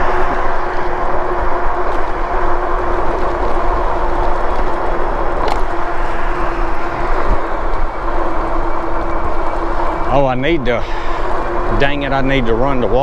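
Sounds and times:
electric motor hum: 0.0 - 13.0
wind rush on microphone: 0.0 - 13.0.

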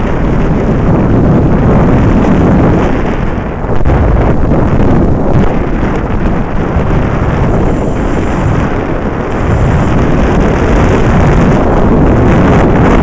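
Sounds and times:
wind buffeting microphone: 0.0 - 13.0
motorcycle engine running: 5.5 - 13.0.

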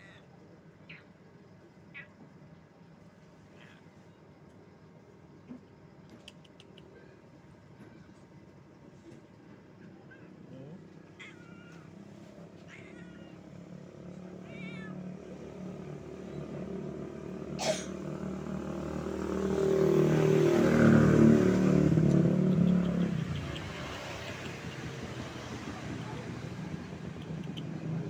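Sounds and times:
cat meowing: 11.0 - 15.5
engine passing: 11.9 - 28.0.

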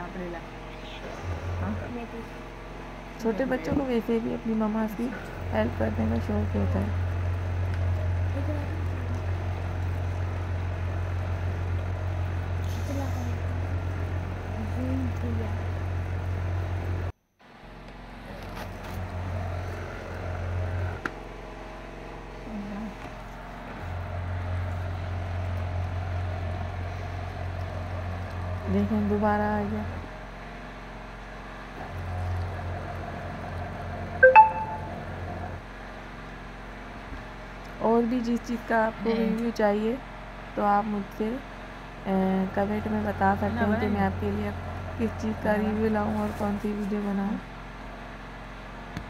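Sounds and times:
citrus juicer motor humming: 0.0 - 34.2, 35.0 - 49.0
electric juicer humming: 5.2 - 12.6, 18.9 - 29.1
bright ringing clink: 34.2 - 35.0.

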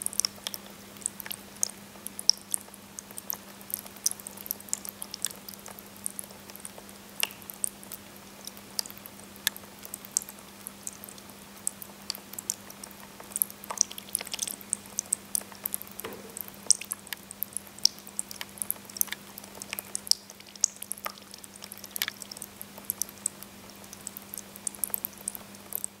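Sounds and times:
water dripping onto pebbles: 0.0 - 26.0
electric pump hum: 16.0 - 17.2.

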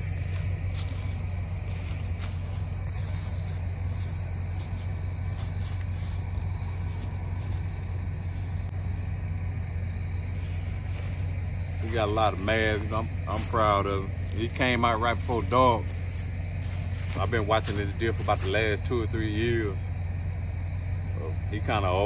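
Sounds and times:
crickets chirring: 0.0 - 22.0
low hum: 0.0 - 22.0.

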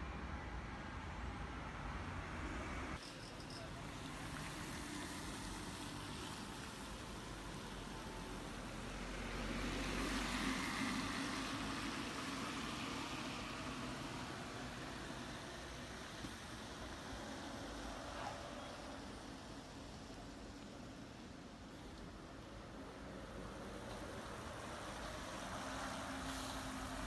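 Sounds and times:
street traffic: 0.0 - 27.0.

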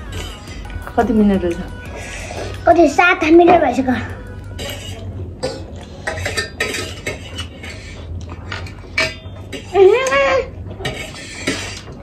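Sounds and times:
cutlery clinking on metal plates: 4.6 - 12.0.

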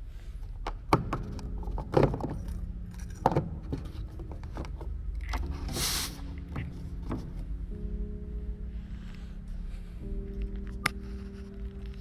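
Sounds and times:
low steady hum: 0.0 - 12.0
plastic caps clicking and knocking: 0.4 - 5.8.

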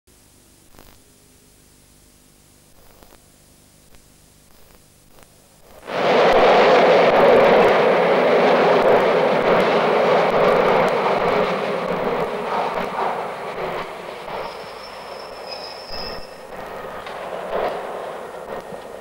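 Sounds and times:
faint hiss and crackle: 0.1 - 19.0
metro train rushing: 5.8 - 19.0.

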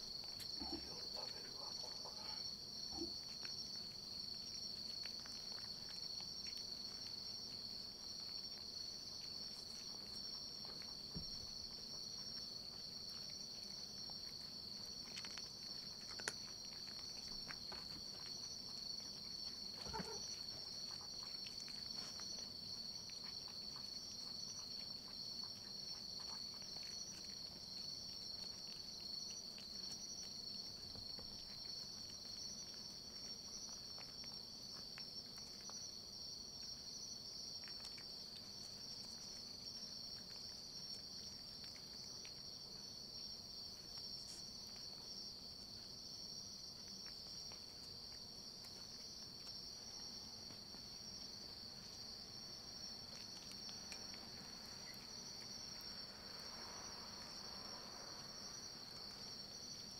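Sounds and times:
crickets trilling: 0.0 - 59.9.

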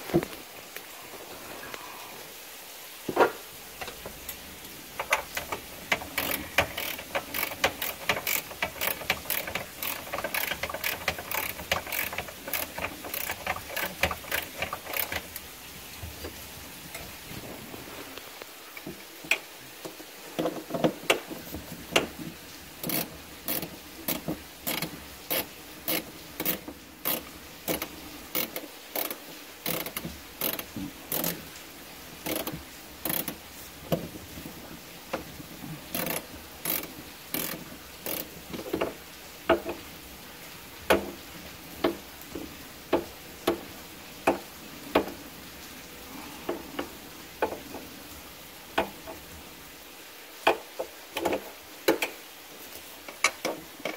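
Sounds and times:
ratchet wrench clicking: 5.0 - 15.4, 22.8 - 31.4, 32.2 - 33.4, 35.9 - 38.3.

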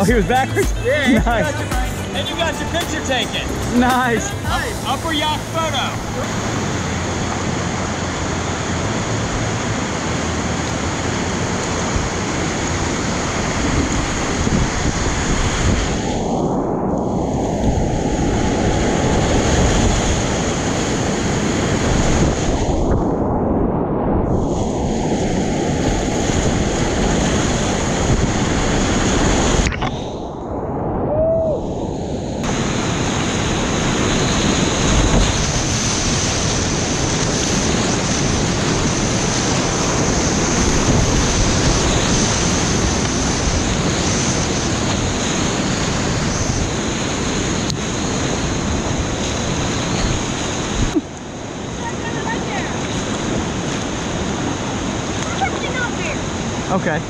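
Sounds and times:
whitewater rapids rushing: 0.0 - 16.3, 32.4 - 57.0
water splashing: 0.0 - 16.4, 32.4 - 56.7.

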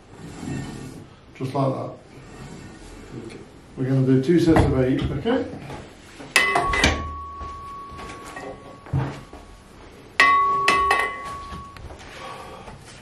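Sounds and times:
gym machine metal clanks: 6.3 - 9.2, 10.2 - 11.8
sharp knocks with metallic ring: 6.4 - 9.4, 10.2 - 11.8.

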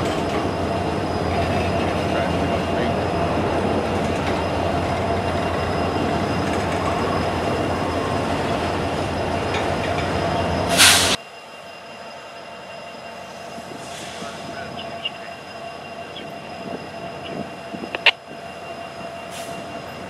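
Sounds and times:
steel wheels rumbling on rail: 0.0 - 11.2, 11.8 - 20.0
distant train noise: 0.0 - 20.0
thin squealing of train wheels: 0.0 - 20.0.

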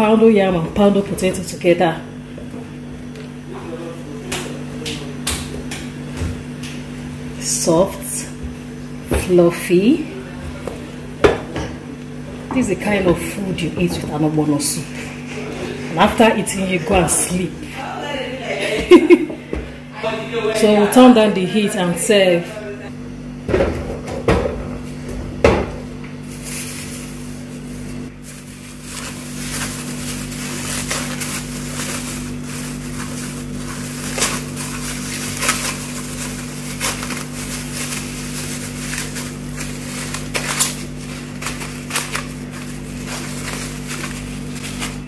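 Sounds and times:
steady low hum: 0.0 - 45.0
plastic wrap crinkling: 26.2 - 45.0.

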